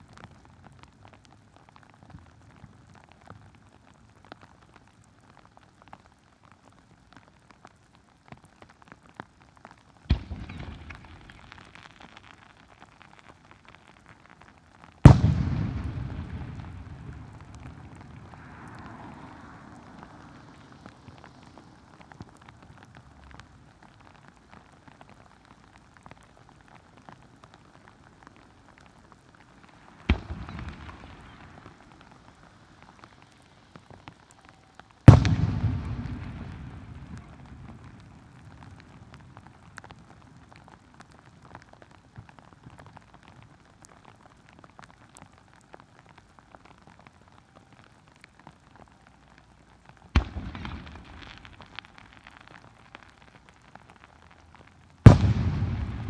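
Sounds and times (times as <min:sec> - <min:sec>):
heavy rain pattering: 0:00.0 - 0:56.0
firework shells bursting: 0:35.1 - 0:38.1, 0:55.0 - 0:56.0
rumbling echo: 0:35.1 - 0:38.9.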